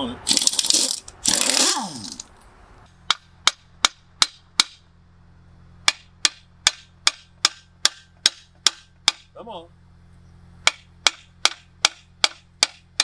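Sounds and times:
hammer striking steel punch: 3.1s - 4.8s, 5.8s - 9.3s, 10.6s - 13.0s.

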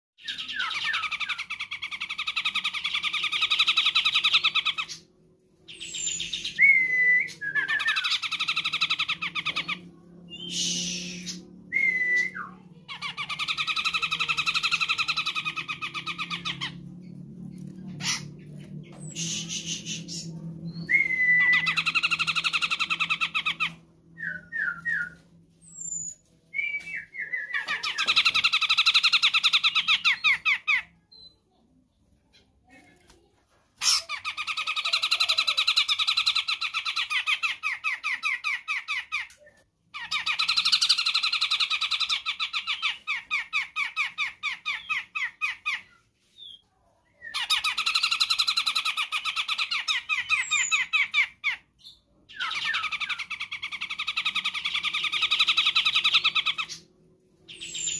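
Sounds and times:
rising whistles and chirps: 5.7s - 9.7s, 10.3s - 12.6s, 19.0s - 23.0s, 23.6s - 27.9s
bird trilling: 5.7s - 16.9s, 17.9s - 25.2s, 47.2s - 56.9s.

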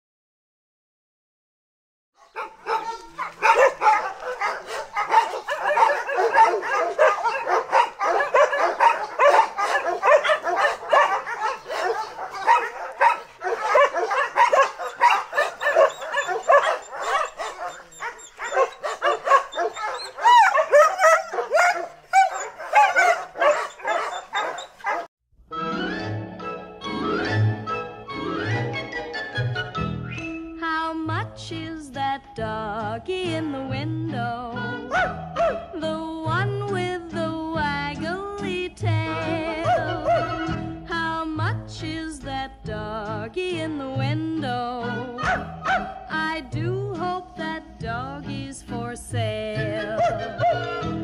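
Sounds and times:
many dogs barking: 2.2s - 25.1s, 34.9s - 35.7s, 39.1s - 40.6s, 45.2s - 46.1s, 49.8s - 51.0s.

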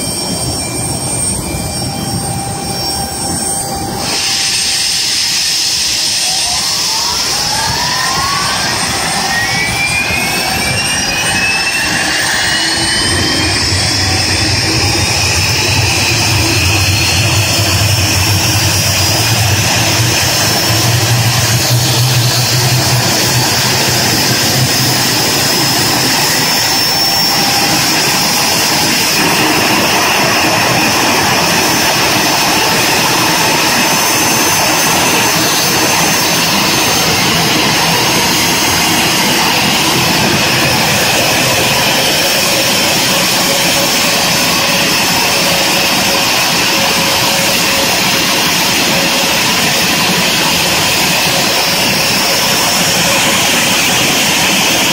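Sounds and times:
jet engine high whine: 0.0s - 54.9s
steady rush of air: 3.6s - 43.5s
low hum: 8.4s - 42.0s.

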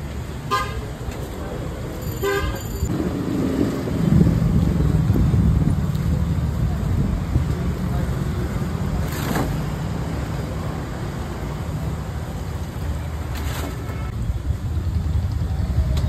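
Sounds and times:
low rumble: 2.9s - 8.2s.

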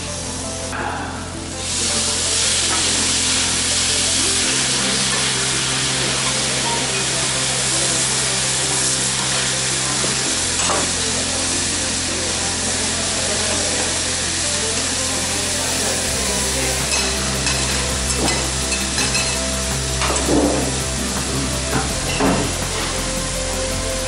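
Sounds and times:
background music with bass notes: 0.0s - 24.0s
food sizzling on a griddle: 1.4s - 24.0s
metal spatulas on griddle: 15.3s - 23.1s.

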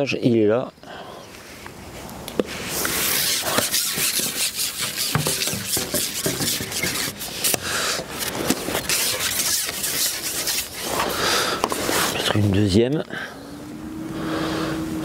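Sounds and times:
fishing pole rubbing through hands: 2.4s - 12.5s
pole clicks and knocks: 5.0s - 7.6s.

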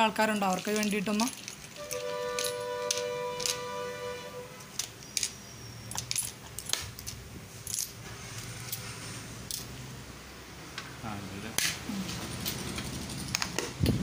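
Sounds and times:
metal fishing tackle rattling: 0.3s - 3.5s.

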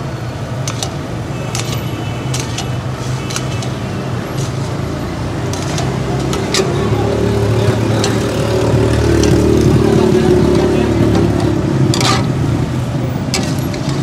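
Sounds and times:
metal spatula scraping a pan: 0.7s - 9.8s, 11.1s - 12.4s, 13.3s - 14.0s.

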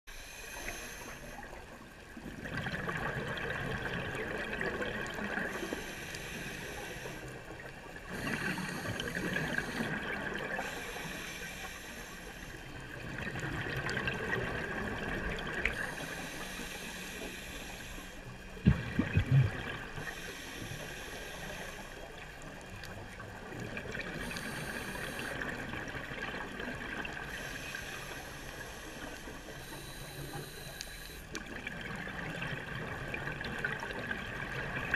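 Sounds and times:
diver breathing through regulator: 0.1s - 1.6s, 5.4s - 7.5s, 8.1s - 12.8s, 15.7s - 18.4s, 19.0s - 22.1s, 24.1s - 25.6s, 27.2s - 31.4s.

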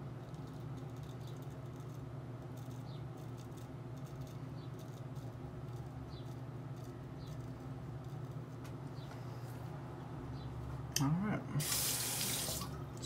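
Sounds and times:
low background hum: 0.0s - 13.0s
razor scraping stubble: 0.2s - 9.4s.

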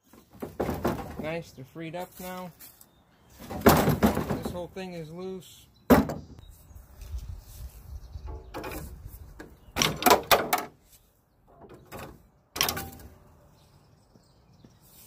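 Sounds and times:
metal clanks and rattles: 0.2s - 1.4s, 9.8s - 10.8s, 11.5s - 13.2s.

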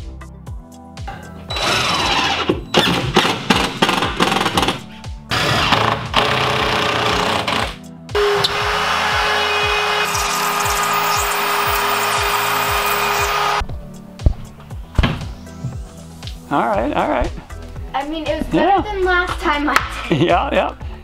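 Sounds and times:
background music with beat: 0.0s - 5.3s, 9.2s - 21.0s
rotary cutting tool whine: 1.5s - 3.4s, 8.2s - 13.6s
cordless drill driving screws: 1.5s - 4.7s, 5.3s - 13.6s.

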